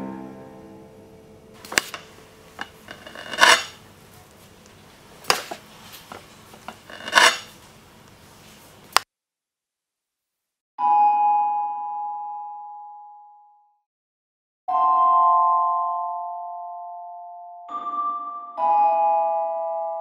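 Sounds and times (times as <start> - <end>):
knife clinking against plate: 1.7 - 3.8
knife cutting cake: 1.7 - 3.8, 5.2 - 7.5.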